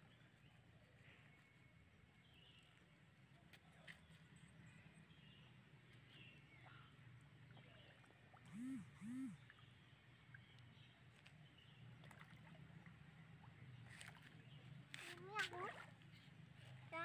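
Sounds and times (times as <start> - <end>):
low hum: 8.4 - 9.8
faint high chirps: 8.5 - 9.6.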